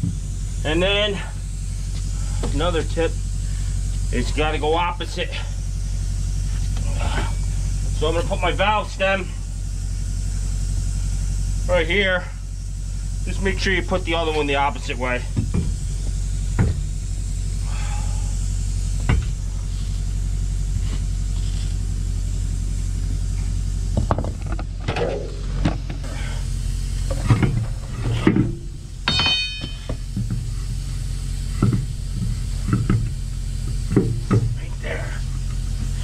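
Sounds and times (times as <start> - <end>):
low engine hum: 0.0 - 36.0
truck wheel knocks and clunks: 15.3 - 16.9, 19.0 - 19.4, 23.9 - 26.0, 27.1 - 30.6, 31.5 - 34.6.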